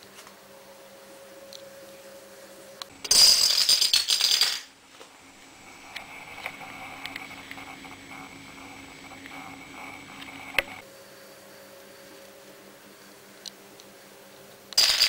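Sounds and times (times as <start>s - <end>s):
plastic dominoes clattering: 3.0s - 4.7s, 14.8s - 15.0s.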